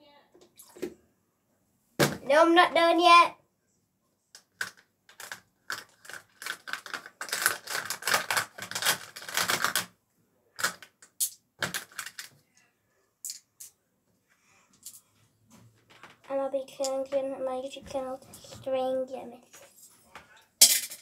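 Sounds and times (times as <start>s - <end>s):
small hard objects clicking: 4.4s - 9.9s.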